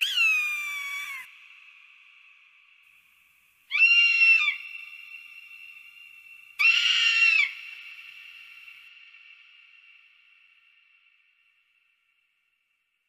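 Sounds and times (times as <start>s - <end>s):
eagle screaming: 0.0s - 1.3s, 3.7s - 4.6s, 6.6s - 7.6s.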